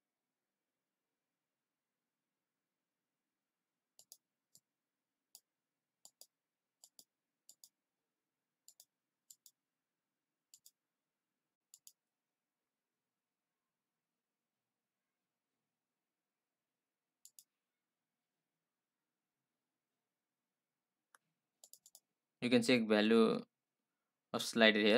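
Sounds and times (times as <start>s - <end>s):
computer mouse clicking: 4.0s - 4.7s, 5.3s - 7.8s, 8.6s - 9.6s, 10.5s - 10.8s, 11.7s - 12.0s, 17.2s - 17.5s, 21.1s - 22.1s.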